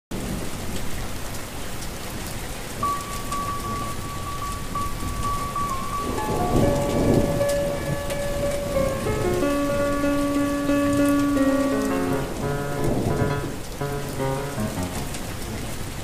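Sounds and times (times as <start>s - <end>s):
steady rain falling: 0.1s - 16.0s
soft music: 2.8s - 15.4s
thunder rumble: 2.8s - 16.0s.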